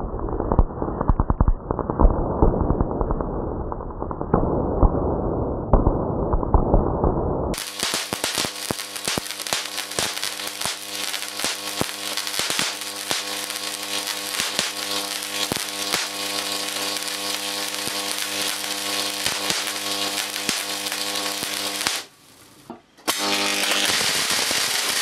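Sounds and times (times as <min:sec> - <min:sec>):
arc crackling snaps: 0:07.5 - 0:25.0
high-voltage arc buzzing hum: 0:07.6 - 0:25.0.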